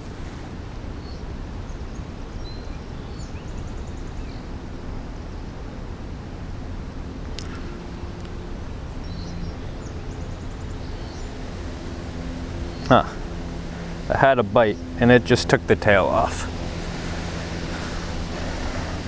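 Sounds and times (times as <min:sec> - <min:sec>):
birds chirping: 0:00.9 - 0:05.0, 0:07.3 - 0:19.0
steady low rumble: 0:04.4 - 0:19.0.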